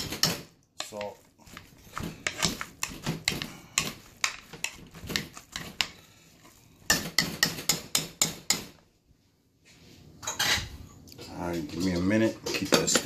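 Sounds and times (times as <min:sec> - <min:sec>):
utensils clacking against metal pot: 0:00.0 - 0:06.0.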